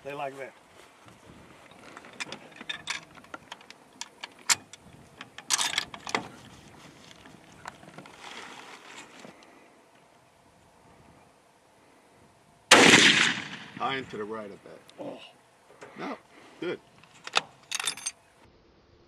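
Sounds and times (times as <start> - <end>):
rattling clatter: 1.7 - 6.4, 17.2 - 18.2
rifle bolt clicks and knocks: 1.8 - 6.3, 17.1 - 18.2.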